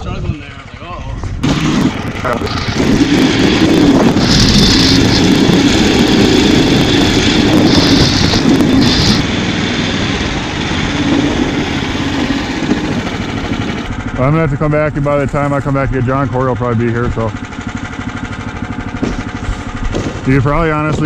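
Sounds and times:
small gasoline engine running: 0.5 - 21.0
high hiss bursts: 2.5 - 9.2.

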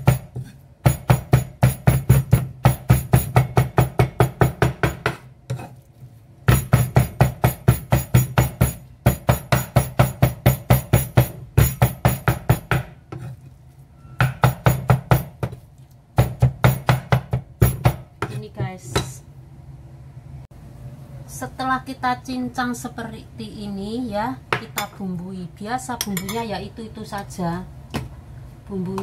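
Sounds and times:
cleaver chopping on wooden block: 0.0 - 5.7, 6.5 - 13.3, 14.2 - 15.6, 16.2 - 18.4.

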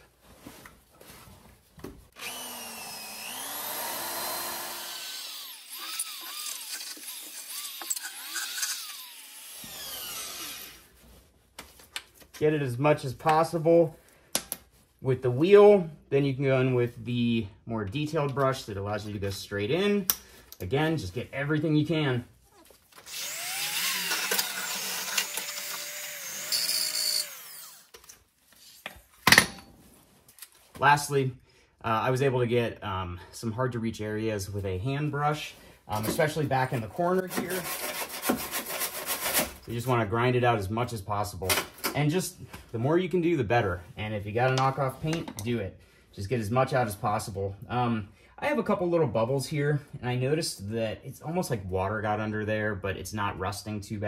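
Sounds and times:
wire wheel grinder on metal: 2.2 - 10.7, 23.1 - 27.9.

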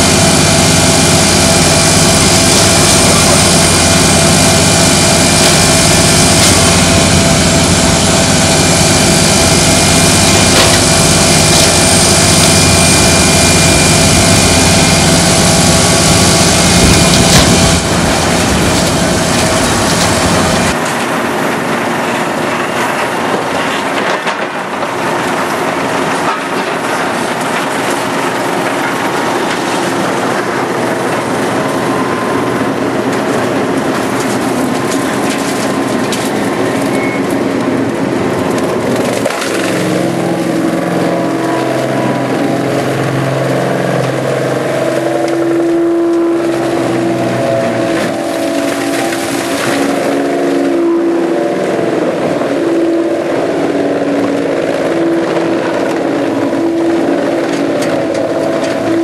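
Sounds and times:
low machine drone: 0.0 - 59.0
wood grinder crushing logs: 0.0 - 59.0.

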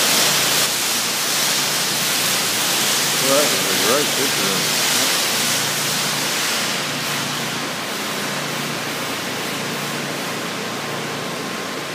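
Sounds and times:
water spraying from nozzles: 0.0 - 11.9.

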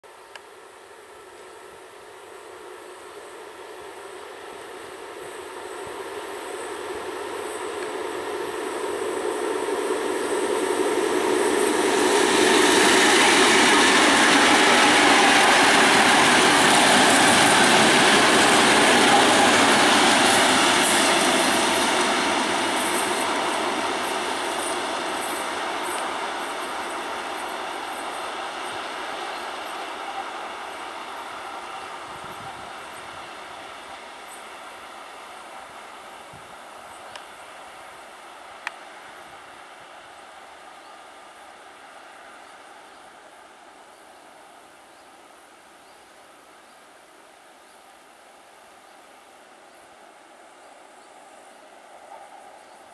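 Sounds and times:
diesel locomotive engines: 0.1 - 52.9
wheels on rails: 6.0 - 39.4.

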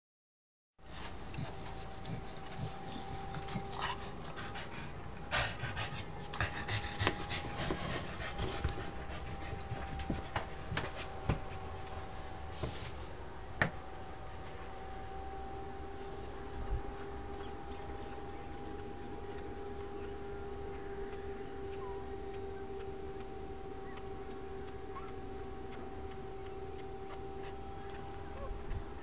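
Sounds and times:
faint steady hum: 0.8 - 29.0
dog panting: 0.9 - 12.1, 21.7 - 29.0.

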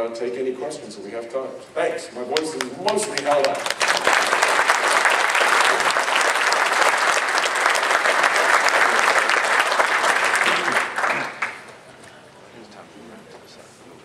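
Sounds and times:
audience applauding: 2.3 - 11.8.

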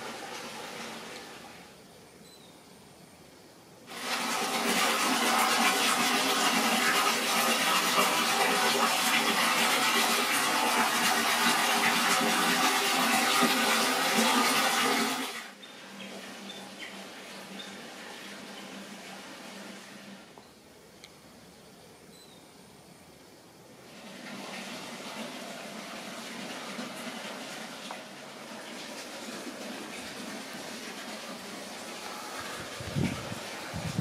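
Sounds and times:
water pouring and splashing: 3.9 - 15.5, 23.9 - 34.0.

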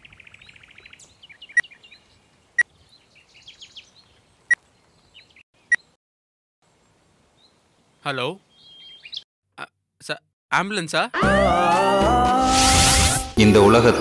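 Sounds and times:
birds chirping faintly: 0.0 - 6.0, 6.6 - 9.3.

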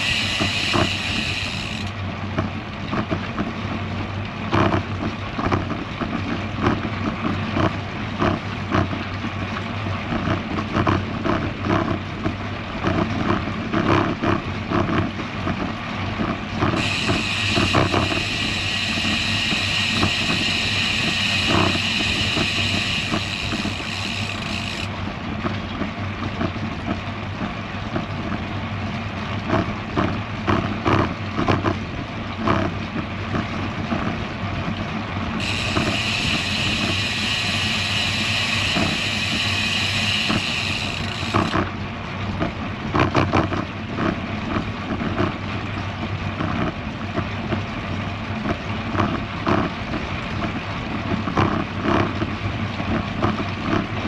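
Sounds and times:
high buzz: 0.0 - 2.0, 16.8 - 24.9, 35.4 - 41.6
bike tyre and road noise: 0.0 - 54.0.

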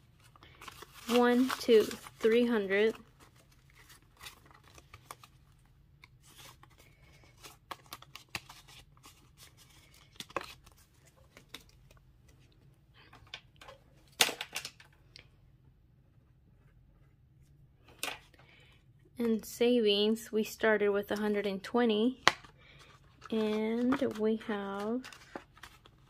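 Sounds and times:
paper banknotes rustling: 0.0 - 12.0, 22.6 - 26.0
plastic envelope crinkling: 0.0 - 12.1, 22.3 - 26.0.

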